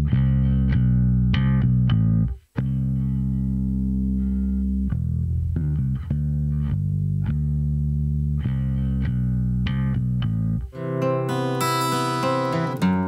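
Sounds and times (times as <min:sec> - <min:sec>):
electric bass guitar: 0:00.0 - 0:13.0.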